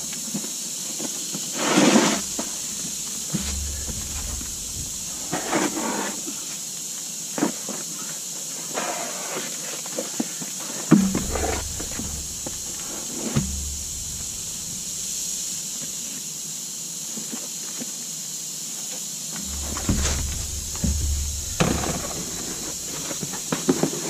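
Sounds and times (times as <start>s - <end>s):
steady high hiss: 0.0s - 24.0s
tar paper knocks and rustles: 1.6s - 6.2s, 10.9s - 15.6s, 19.4s - 24.0s
low rumble: 3.4s - 5.4s, 11.0s - 15.8s, 19.4s - 23.0s.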